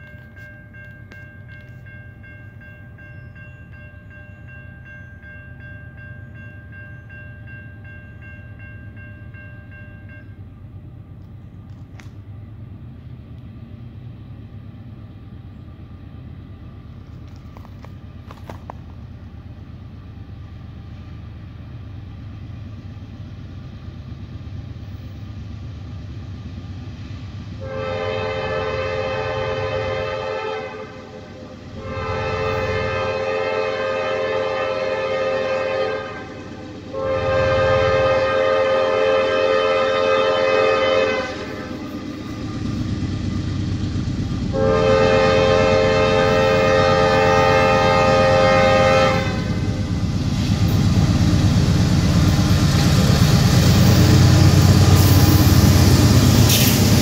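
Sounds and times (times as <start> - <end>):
train rumbling: 0.0 - 57.0
locomotive air horn: 27.6 - 41.8, 44.5 - 49.8.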